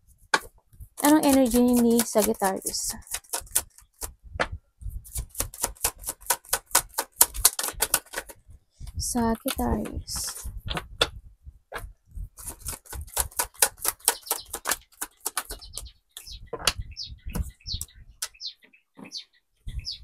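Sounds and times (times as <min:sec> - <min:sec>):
cards shuffled by hand: 0:00.4 - 0:04.1.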